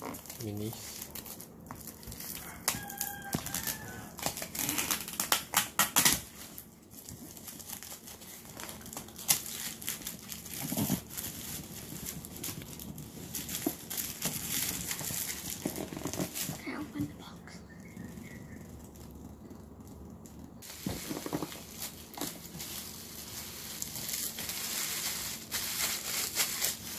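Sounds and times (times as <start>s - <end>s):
plastic shrink-wrap crinkling and tearing: 0.0s - 17.0s, 17.7s - 26.9s.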